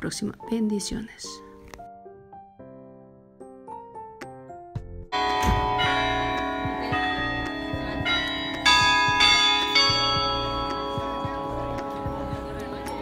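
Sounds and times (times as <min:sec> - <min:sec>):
soft piano music: 0:00.0 - 0:13.0
bells ringing loudly: 0:05.2 - 0:13.0.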